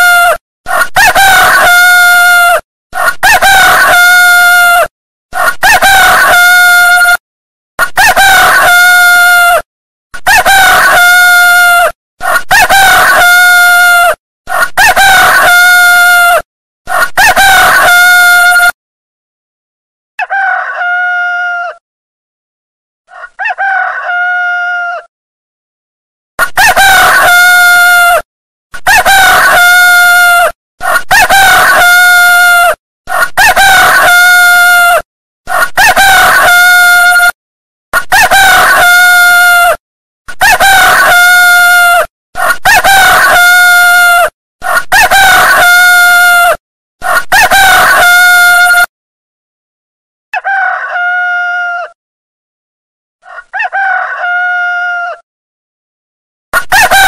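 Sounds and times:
rooster crowing: 0:00.0 - 0:07.2, 0:20.2 - 0:21.8, 0:23.1 - 0:25.1, 0:28.9 - 0:30.5, 0:40.4 - 0:48.9, 0:50.4 - 0:52.0, 0:53.2 - 0:55.2, 0:56.6 - 0:57.0.

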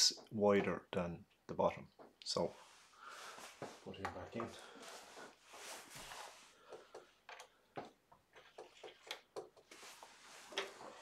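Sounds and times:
faint clicks and metal taps: 0:06.7 - 0:09.7.

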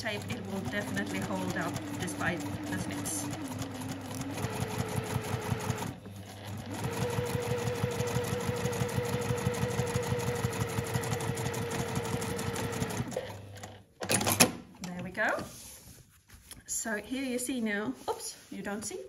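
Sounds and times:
sewing machine stitching: 0:00.0 - 0:14.6.

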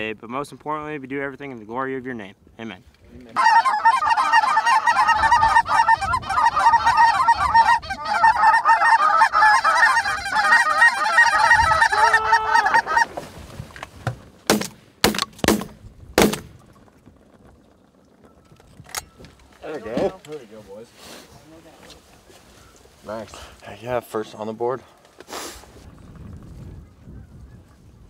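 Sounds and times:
geese honking and cackling: 0:03.4 - 0:13.2
shotgun shots: 0:14.5 - 0:16.6.

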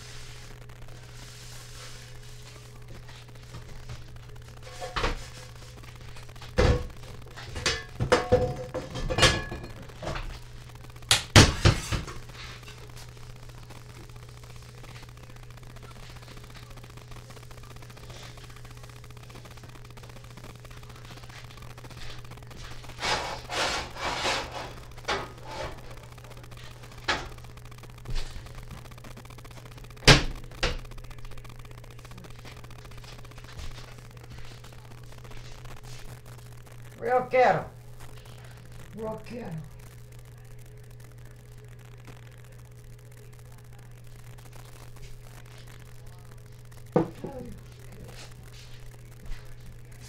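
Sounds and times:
rubbing and scraping: 0:22.9 - 0:25.8.

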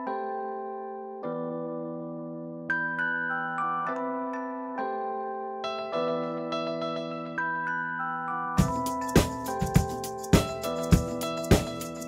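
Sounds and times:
held keyboard chords: 0:00.0 - 0:12.0
steady drum beat: 0:08.6 - 0:12.0.

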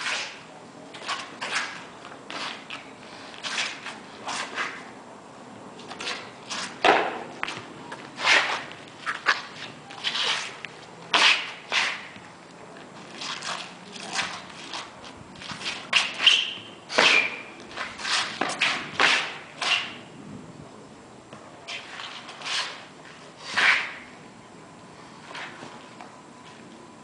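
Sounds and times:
sneakers stepping on asphalt: 0:06.5 - 0:15.9
sword swishing through air: 0:23.4 - 0:24.1.

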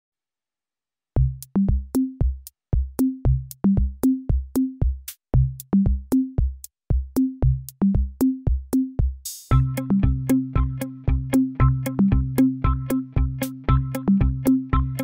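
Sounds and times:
background music with low beat: 0:01.2 - 0:15.0.

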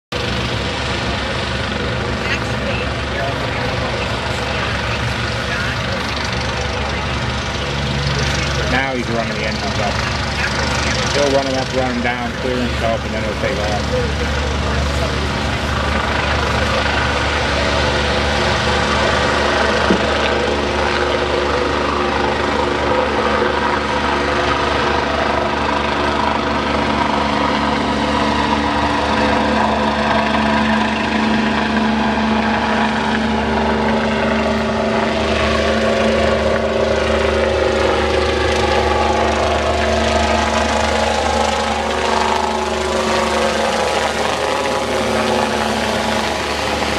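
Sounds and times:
helicopter rotors and turbines: 0:00.1 - 0:46.9.

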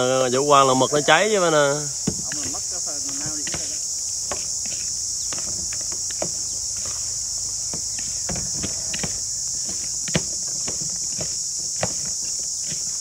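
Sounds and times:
high-pitched drone of insects: 0:00.0 - 0:13.0.

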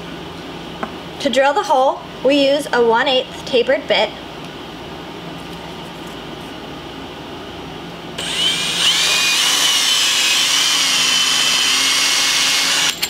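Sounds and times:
drill whine: 0:08.2 - 0:13.0.

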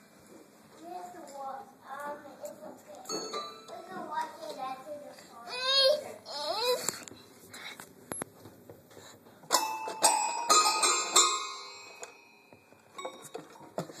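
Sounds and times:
toy piano notes: 0:09.5 - 0:13.6.

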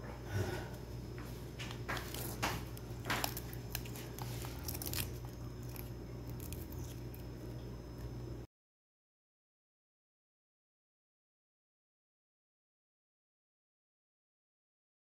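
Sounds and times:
steady low hum: 0:00.0 - 0:08.5
garlic skins crackling: 0:01.7 - 0:07.6.

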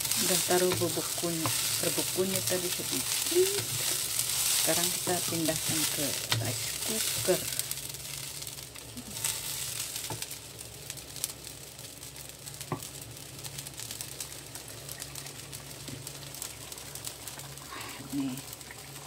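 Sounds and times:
spatula tapping wok: 0:00.0 - 0:07.8, 0:09.2 - 0:10.4
rice sizzling in a wok: 0:00.0 - 0:19.0.

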